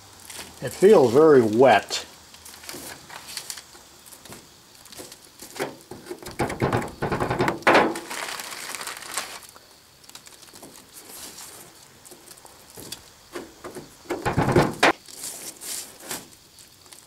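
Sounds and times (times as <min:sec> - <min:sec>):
plastic bag rustling: 0:07.8 - 0:13.0
sand packed by hand: 0:07.9 - 0:09.5.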